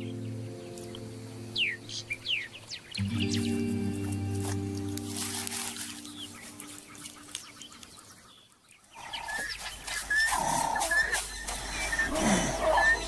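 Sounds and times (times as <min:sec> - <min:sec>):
background music: 0:00.0 - 0:07.4
bird chirping: 0:00.0 - 0:13.0
low animal calls: 0:09.0 - 0:13.0.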